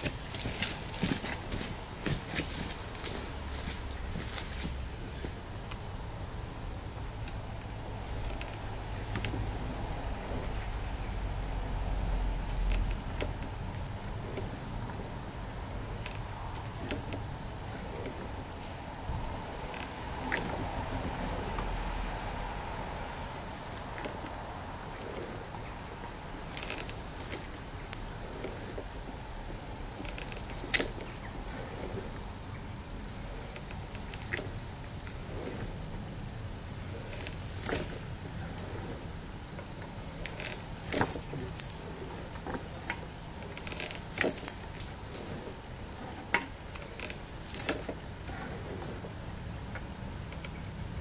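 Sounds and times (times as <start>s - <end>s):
metal parts clinking and knocking: 7.6s - 10.1s, 12.4s - 12.9s, 13.7s - 14.1s, 19.7s - 21.2s, 23.4s - 24.1s, 26.6s - 28.5s, 30.1s - 31.9s, 33.8s - 35.3s, 37.1s - 38.7s, 39.8s - 42.0s, 43.5s - 45.4s, 46.3s - 48.5s.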